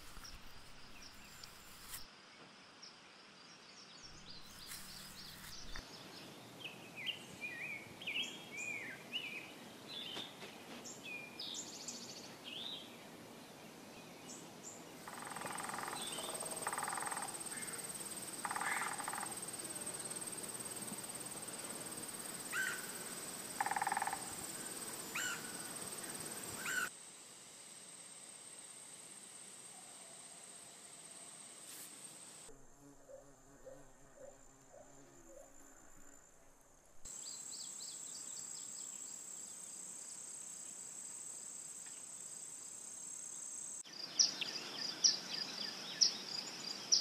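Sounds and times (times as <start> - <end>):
high insect trill: 0.0 - 2.1, 4.2 - 5.8, 15.0 - 47.0.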